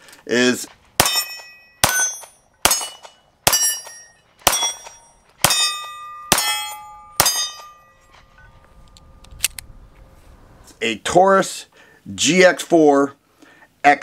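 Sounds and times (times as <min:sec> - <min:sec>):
pistol shots: 0:01.0 - 0:07.7
steel target ringing clang: 0:01.0 - 0:08.1.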